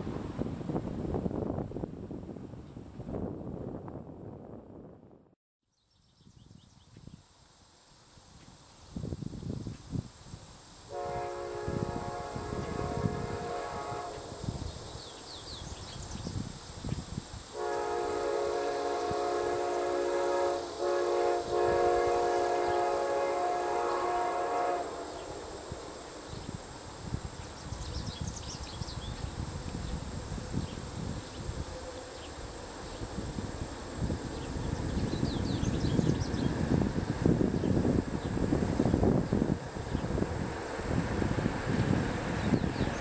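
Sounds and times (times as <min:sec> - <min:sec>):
low wind rumble: 0:00.0 - 0:05.4, 0:08.2 - 0:43.0
faint insect chirps: 0:05.7 - 0:43.0
locomotive horn chord: 0:10.9 - 0:14.7, 0:17.6 - 0:25.8.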